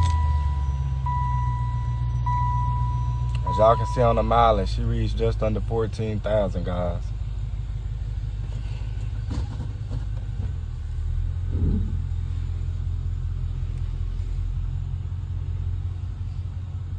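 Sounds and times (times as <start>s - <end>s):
car engine idling: 0.0s - 16.9s.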